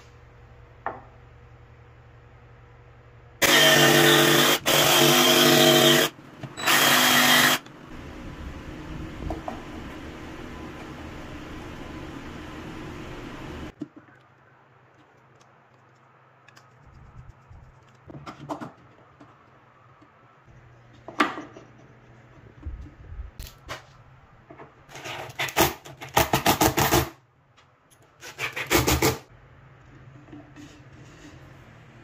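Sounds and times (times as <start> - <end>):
cordless drill driving screws: 3.4 - 7.6
plywood parts knocking and scraping: 17.8 - 19.6.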